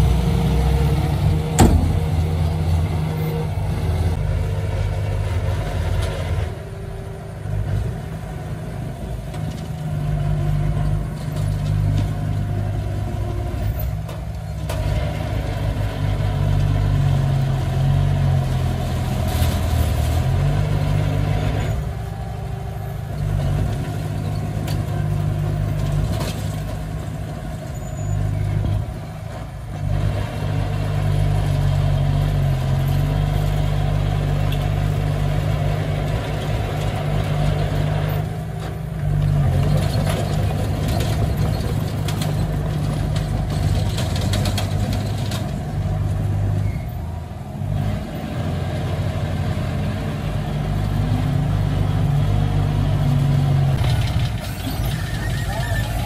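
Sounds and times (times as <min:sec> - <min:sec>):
bulldozer diesel engine working: 0:00.0 - 0:56.0.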